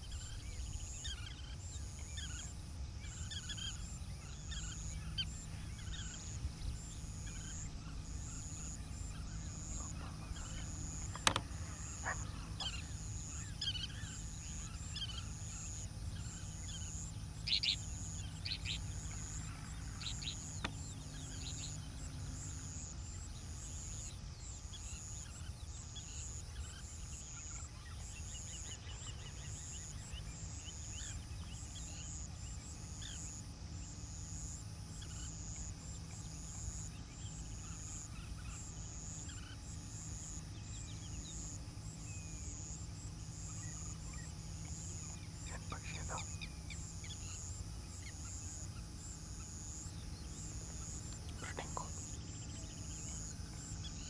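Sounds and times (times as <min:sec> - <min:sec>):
birds chirping: 0:00.0 - 0:54.0
sharp click: 0:11.1 - 0:11.5.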